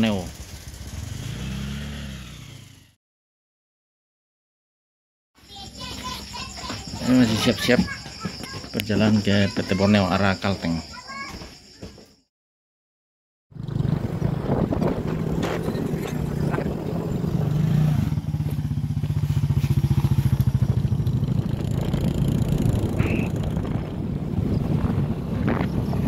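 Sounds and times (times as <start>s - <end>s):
motorcycle engine throbbing: 0.0s - 3.0s, 13.6s - 26.0s.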